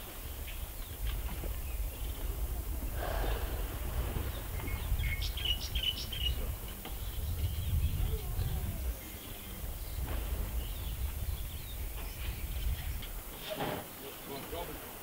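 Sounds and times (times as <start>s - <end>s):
low rumble: 0.9s - 13.1s
brief rush of noise: 2.9s - 4.6s.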